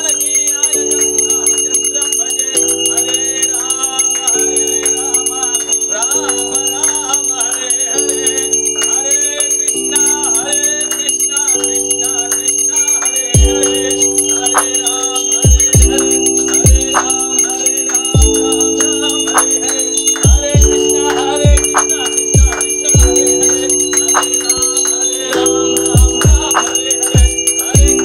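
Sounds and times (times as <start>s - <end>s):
person singing over chords: 0.0s - 28.0s.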